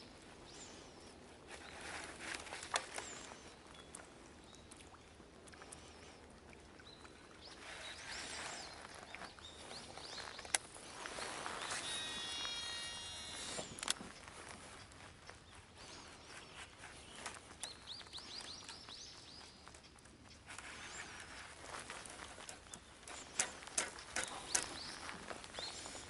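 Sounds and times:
soft rustling: 0.0s - 4.5s, 5.5s - 12.2s, 13.2s - 26.0s
bird calling: 9.9s - 13.9s, 21.7s - 26.0s.

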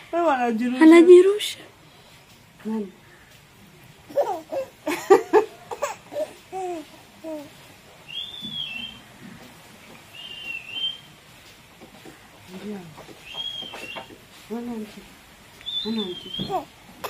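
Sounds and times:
baby babbling and laughing: 4.1s - 4.8s, 5.7s - 7.6s, 16.5s - 16.8s
high whistle-like chirps: 8.1s - 9.0s, 10.1s - 11.1s, 13.2s - 14.1s, 15.6s - 16.6s.

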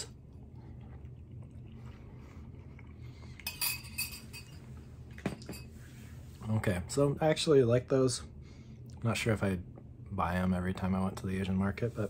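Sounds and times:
metal spoon clinking on glass bowl: 3.4s - 4.6s.

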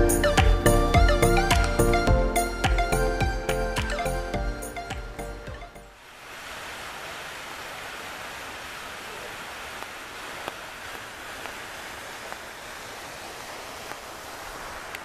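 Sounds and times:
rain: 0.0s - 15.0s
waterfall splashing into pool: 6.0s - 15.0s.

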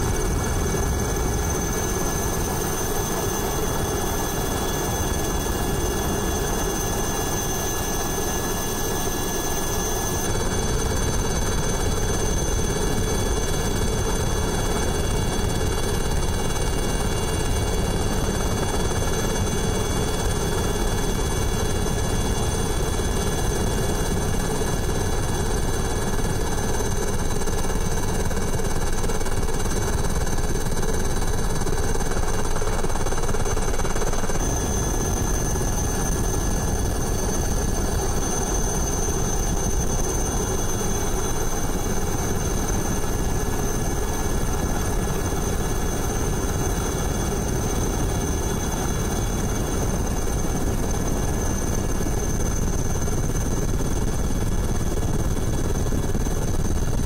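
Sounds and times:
helicopter rotor drone: 0.0s - 57.0s
helicopter turbine whine: 0.0s - 57.0s.

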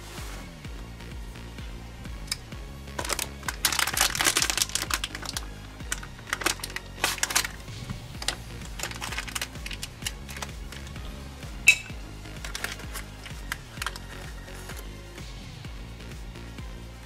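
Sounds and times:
background music: 0.0s - 17.0s
foil packet crinkling and tearing: 3.0s - 10.5s, 12.4s - 14.8s.

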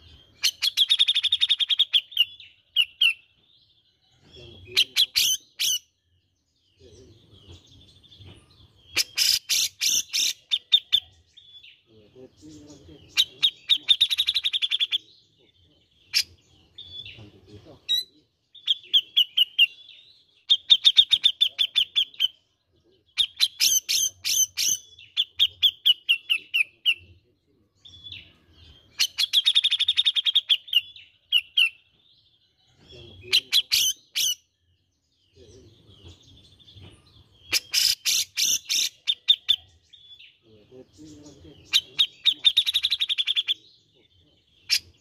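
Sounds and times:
bird sharp chattering calls: 0.0s - 3.3s, 4.5s - 6.0s, 8.9s - 11.7s, 12.6s - 15.1s, 16.0s - 22.5s, 23.1s - 27.1s, 28.0s - 31.8s, 33.0s - 34.6s, 35.8s - 40.4s, 41.1s - 43.7s, 44.6s - 45.0s.

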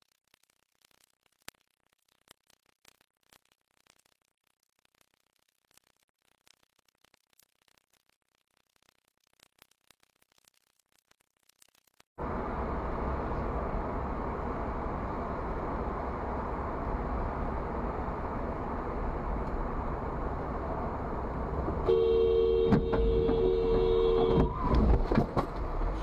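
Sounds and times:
car road and engine noise: 12.2s - 26.0s
two-note car horn blare: 21.8s - 24.6s.

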